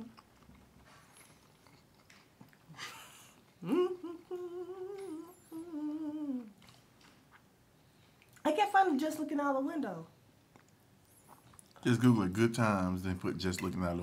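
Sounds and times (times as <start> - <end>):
person humming: 3.6 - 6.6.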